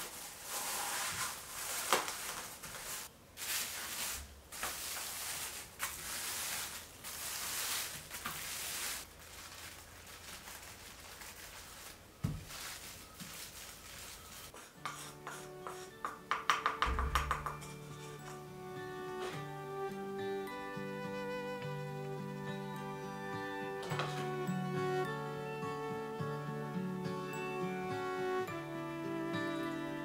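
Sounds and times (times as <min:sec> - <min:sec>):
plastic wrap crinkling: 0:00.0 - 0:14.6
rolling pin rubbing over dough: 0:12.4 - 0:16.8
dull knock: 0:16.1 - 0:17.7.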